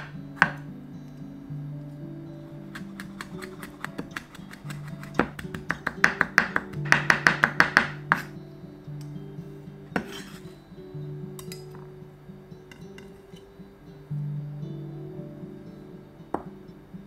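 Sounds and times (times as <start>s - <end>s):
acoustic guitar music: 0.0s - 17.0s
knife chopping on wooden board: 2.8s - 8.3s.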